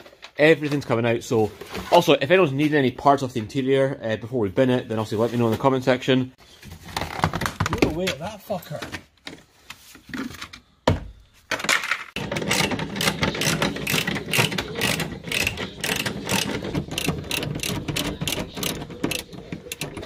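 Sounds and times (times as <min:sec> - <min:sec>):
ratchet wrench clicking: 0:12.4 - 0:20.0.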